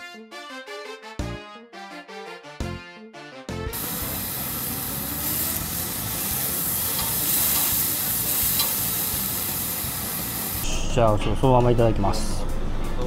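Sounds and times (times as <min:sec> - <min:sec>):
beef sizzling on a grill: 0:03.8 - 0:10.6.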